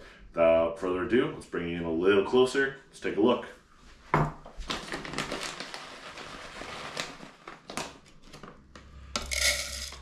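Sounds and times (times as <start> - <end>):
plastic packaging crinkling: 4.6 - 8.6.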